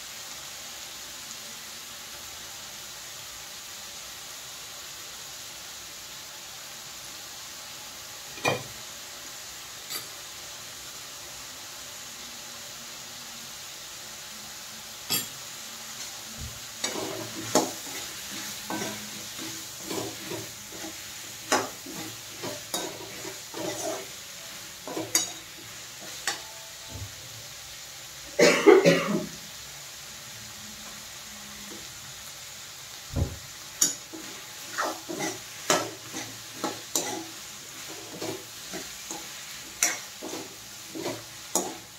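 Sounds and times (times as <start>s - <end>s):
vegetables sizzling in oil: 0.0s - 41.9s
spoon scraping and clinking pan: 16.8s - 24.1s, 24.8s - 26.5s, 33.8s - 41.9s.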